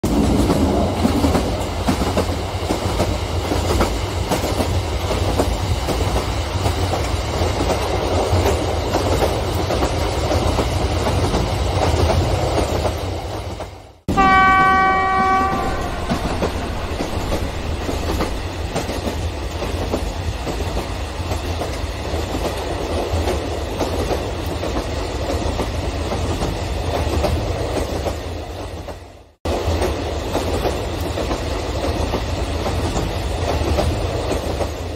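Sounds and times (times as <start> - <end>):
train horn blast: 14.1 - 19.1.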